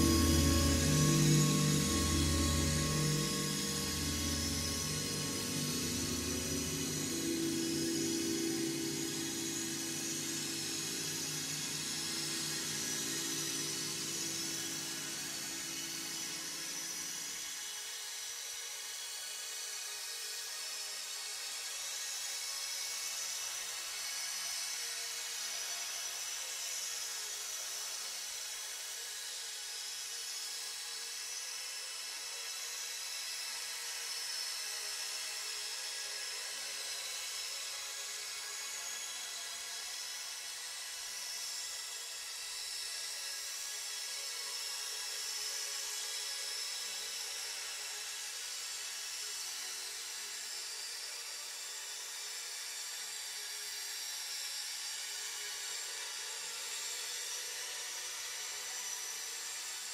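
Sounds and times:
synthesizer drone: 0.0s - 16.6s.

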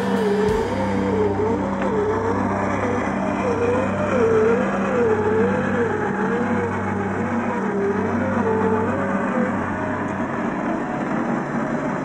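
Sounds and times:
electric motor whine: 0.0s - 12.0s.

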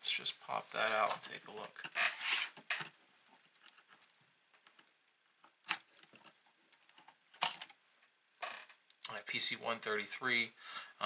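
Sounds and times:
small clicks and scratches: 1.0s - 8.1s.

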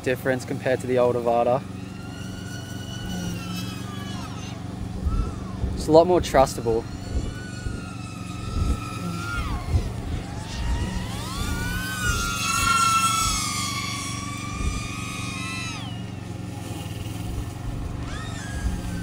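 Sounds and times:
drone whining in flight: 0.0s - 19.0s
wind gusts on microphone: 4.6s - 19.0s.

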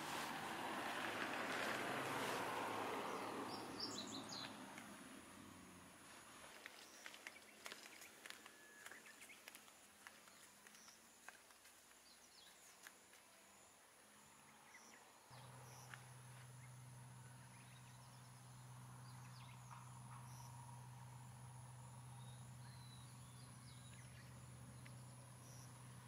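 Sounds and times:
steady low hum: 14.3s - 26.0s.

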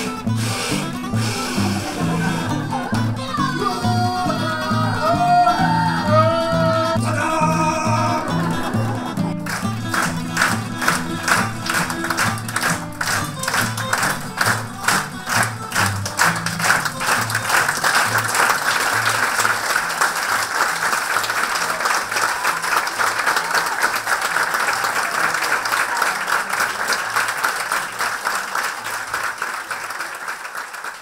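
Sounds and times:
audience applauding: 0.0s - 31.0s
music with repeating bass line: 0.1s - 17.0s.

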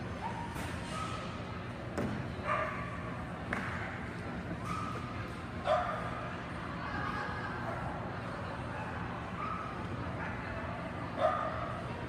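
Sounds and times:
dog barking: 2.4s - 2.9s, 11.2s - 11.6s.

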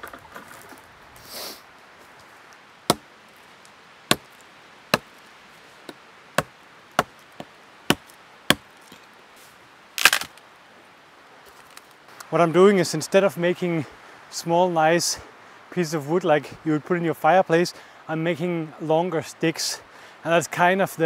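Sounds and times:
hatchet chopping wood: 2.9s - 3.1s, 4.1s - 4.3s, 4.9s - 5.1s, 5.9s - 8.7s.

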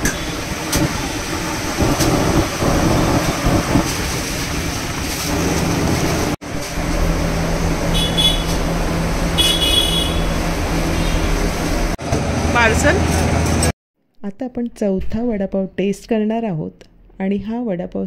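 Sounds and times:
busy street traffic: 0.0s - 13.7s
low drone: 0.0s - 13.7s.

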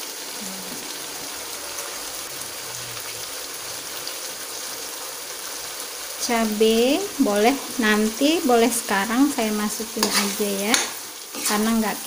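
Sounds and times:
spice paste sizzling in oil: 0.0s - 12.0s.

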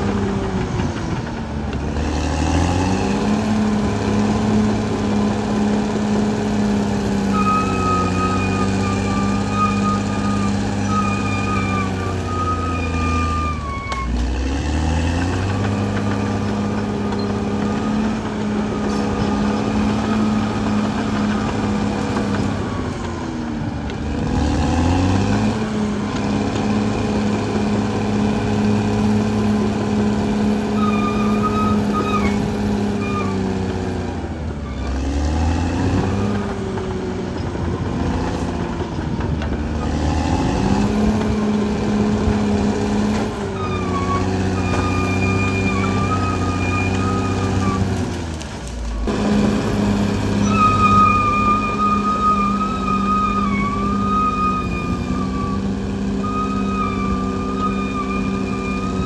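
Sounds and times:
bulldozer diesel engine running hard: 0.0s - 59.0s.

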